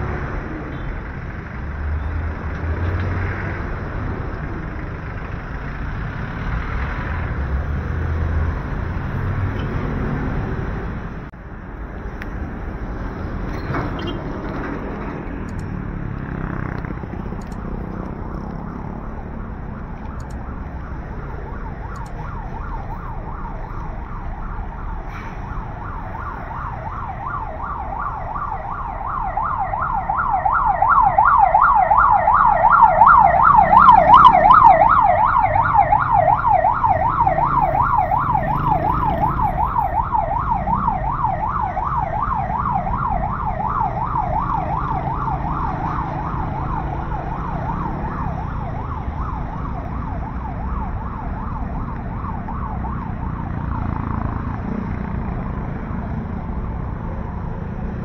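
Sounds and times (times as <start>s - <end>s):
street traffic rumble: 0.0s - 58.0s
emergency vehicle siren yelping: 13.1s - 58.0s.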